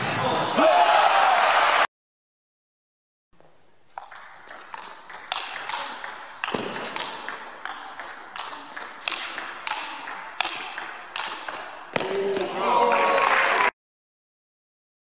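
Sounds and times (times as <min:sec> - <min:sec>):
table tennis ball clicking: 0:04.0 - 0:12.1.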